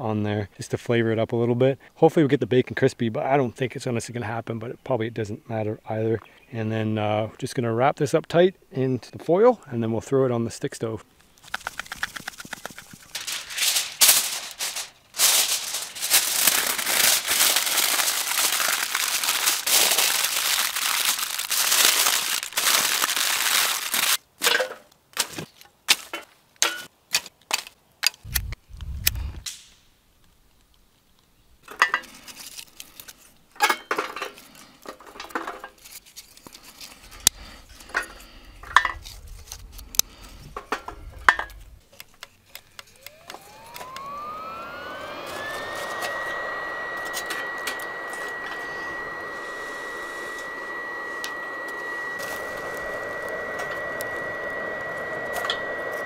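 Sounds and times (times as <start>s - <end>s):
stove fan whine: 11.1s - 24.2s, 28.2s - 29.6s, 31.6s - 56.0s
aluminium foil crinkling: 11.2s - 24.2s, 30.3s - 44.1s
tinder crackling as lit: 11.2s - 24.2s, 28.2s - 33.5s, 49.3s - 56.0s.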